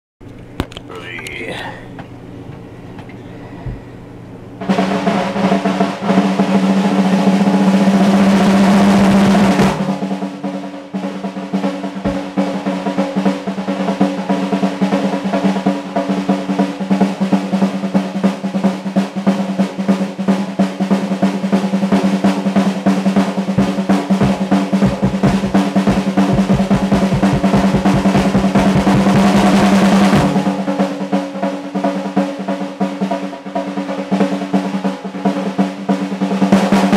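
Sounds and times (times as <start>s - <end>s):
rapid strokes on snare and toms: 4.6s - 36.9s
snare drum roll: 4.6s - 36.9s
low drum hits: 23.5s - 30.7s.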